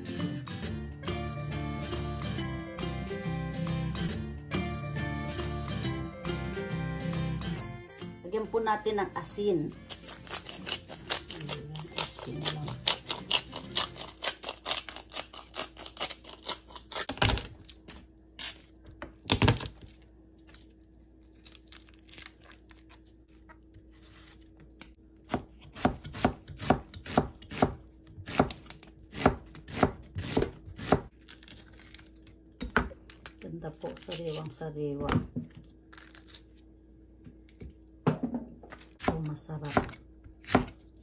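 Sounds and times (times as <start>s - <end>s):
knife chopping on cutting board: 25.2s - 31.1s, 38.1s - 40.8s.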